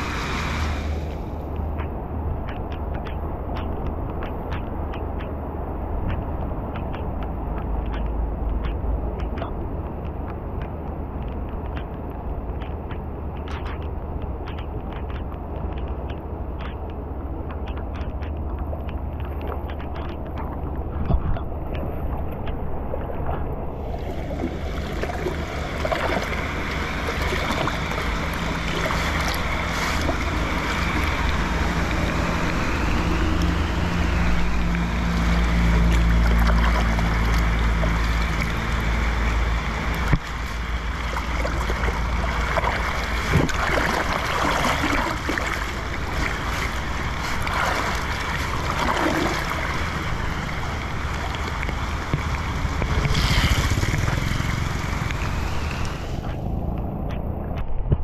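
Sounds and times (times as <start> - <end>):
low hum: 0.0 - 58.0
rain pattering on water: 0.0 - 58.0
wind buffeting microphone: 0.0 - 58.0
water gurgling into drain: 23.0 - 56.4.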